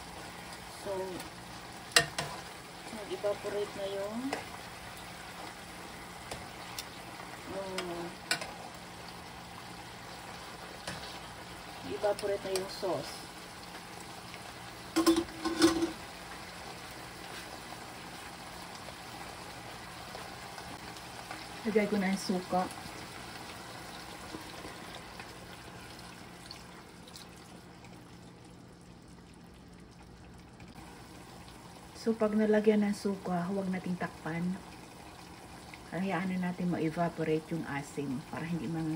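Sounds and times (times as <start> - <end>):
chicken sizzling in a pan: 0.0 - 28.8, 30.7 - 38.9
sauce bubbling quietly: 0.0 - 38.9
metal tongs clicking on a pan: 2.0 - 2.3, 7.8 - 8.5
liquid trickling into pan: 13.3 - 17.1, 22.9 - 31.9.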